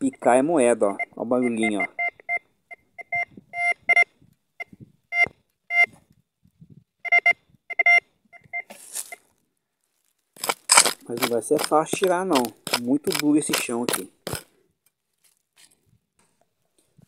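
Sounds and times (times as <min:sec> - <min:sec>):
metal detector short beeps: 0:01.0 - 0:06.0, 0:07.0 - 0:09.2
scratchy noise: 0:10.4 - 0:14.5.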